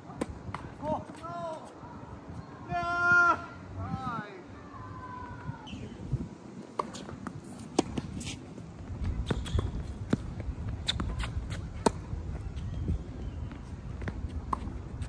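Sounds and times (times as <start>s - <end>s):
racket hitting tennis ball: 6.7s - 8.4s, 9.2s - 12.1s
tennis ball bouncing on court: 9.2s - 12.1s, 14.0s - 14.8s.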